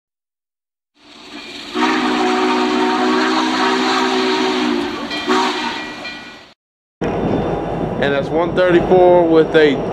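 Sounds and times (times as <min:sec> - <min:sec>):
train whistle chord: 0:01.7 - 0:06.0.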